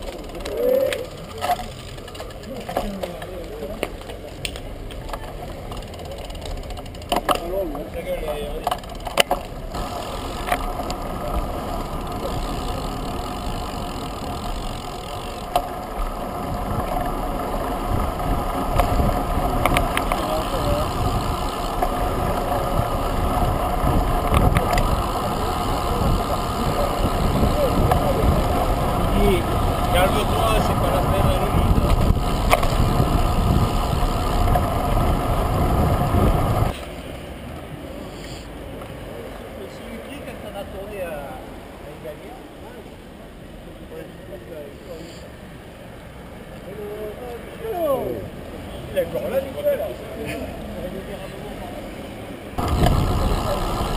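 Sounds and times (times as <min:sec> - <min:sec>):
bike tyre and road noise: 0:00.0 - 0:53.9
wind buffeting microphone: 0:09.6 - 0:36.7, 0:52.6 - 0:53.9.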